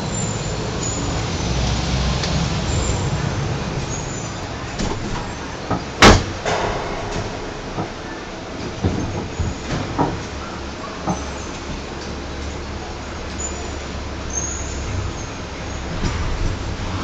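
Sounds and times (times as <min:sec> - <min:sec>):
cable car rumble: 0:00.0 - 0:17.0
loud sharp clunk: 0:04.8 - 0:10.4.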